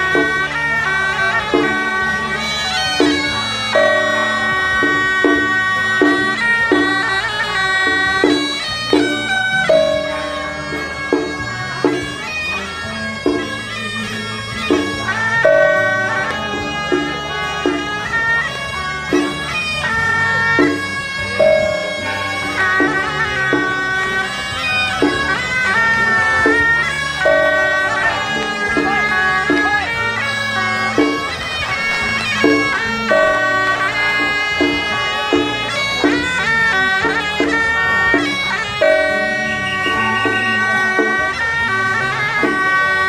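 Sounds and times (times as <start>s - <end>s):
double-reed horn melody: 0.0s - 43.0s
ringing percussion stroke: 2.6s - 7.3s, 8.2s - 12.4s, 14.4s - 17.7s, 20.6s - 23.8s, 26.5s - 29.8s, 32.0s - 36.4s, 38.2s - 40.7s
drum strikes: 2.6s - 12.6s, 13.2s - 13.8s, 14.4s - 18.2s, 19.0s - 19.9s, 20.6s - 24.4s, 25.0s - 25.5s, 26.2s - 41.2s.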